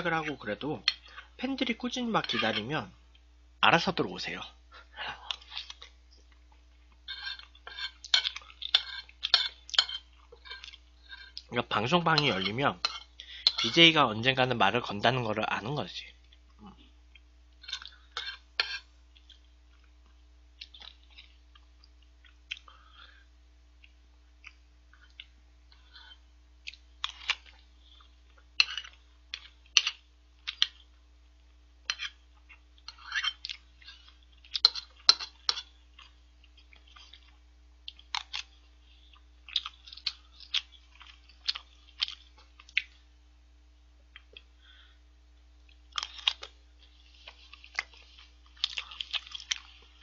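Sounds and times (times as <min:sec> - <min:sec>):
faint low hum: 0:00.0 - 0:50.0
metal spoon scraping plate: 0:07.1 - 0:11.4, 0:12.2 - 0:13.8, 0:18.2 - 0:18.9
wet chewing and mouth smacks: 0:19.1 - 0:22.8, 0:23.8 - 0:31.0, 0:32.0 - 0:43.0, 0:45.6 - 0:50.0.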